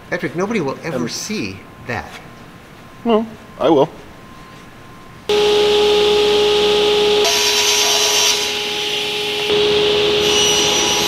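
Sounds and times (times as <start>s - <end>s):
power tool motor whine: 5.3s - 11.0s.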